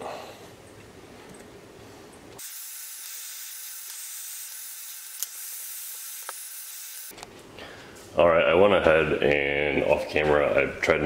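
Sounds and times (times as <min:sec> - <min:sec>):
heat gun blowing air: 0:02.4 - 0:07.1.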